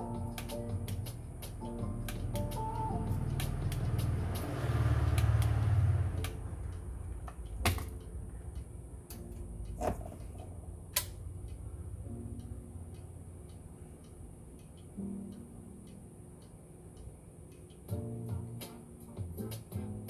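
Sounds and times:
sharp clicks: 10.9 - 11.6.

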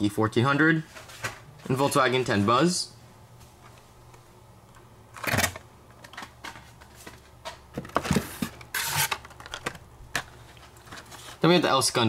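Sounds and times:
plastic packaging rustling: 5.3 - 11.8.

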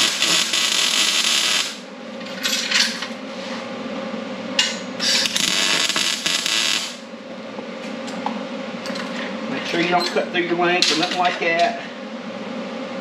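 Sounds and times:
welding arc crackling: 0.0 - 1.9, 5.1 - 7.1
steady low hum: 0.0 - 13.0.

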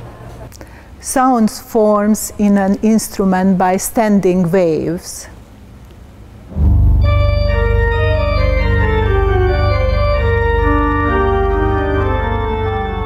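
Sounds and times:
pipe organ playing: 6.9 - 13.0.

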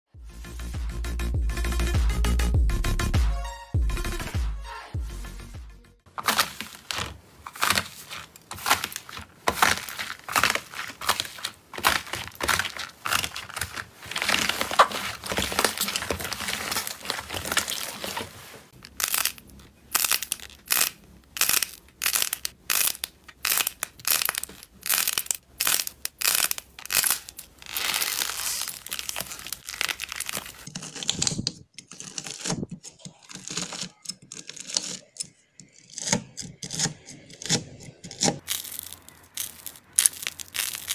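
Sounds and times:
slime crackling: 6.2 - 30.7, 38.4 - 40.9
knife crunching through slime: 6.2 - 35.1, 38.3 - 40.9.

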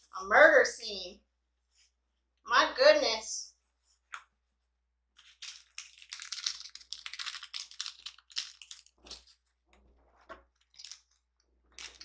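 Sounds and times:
plastic sachets crinkling: 5.2 - 9.5.

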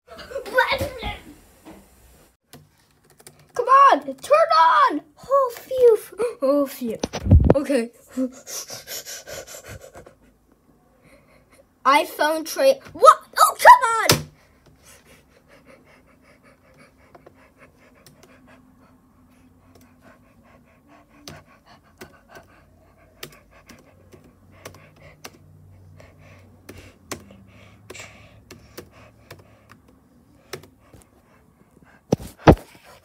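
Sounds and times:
laptop keys and trackpad clicking: 2.5 - 3.6, 23.2 - 25.5, 26.6 - 31.0.

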